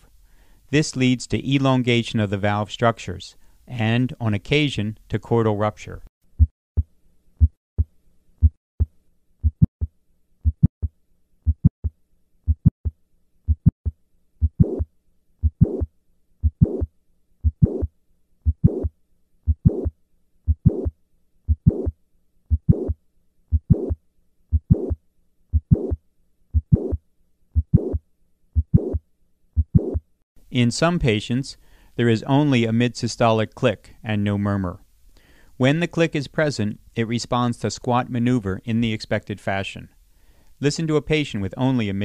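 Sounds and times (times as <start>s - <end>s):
low heartbeat thumps: 6.4s - 20.9s, 21.5s - 28.0s, 28.6s - 29.0s, 29.6s - 30.1s
heart click and murmur: 7.4s - 9.8s, 10.4s - 10.8s, 11.5s - 11.7s, 12.5s - 12.7s, 13.5s - 18.9s, 19.5s - 19.9s, 20.5s - 20.9s, 21.5s - 27.0s, 27.6s - 28.0s, 28.6s - 29.0s, 29.6s - 30.0s.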